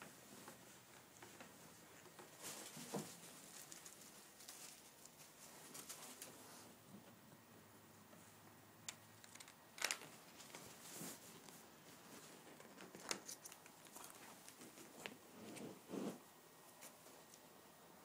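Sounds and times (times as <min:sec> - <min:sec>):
animals scrabbling on cushions: 0:10.6 - 0:12.8.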